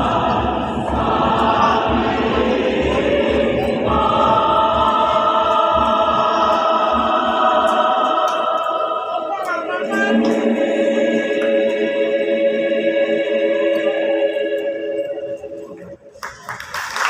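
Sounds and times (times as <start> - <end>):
low pulsing beat: 0.0 - 12.0
choir singing in parts: 0.0 - 16.1.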